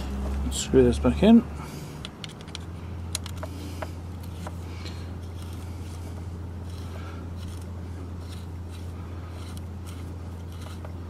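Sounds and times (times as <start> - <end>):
steady low hum: 0.0 - 11.0
metal clicks and ticks: 2.0 - 3.5.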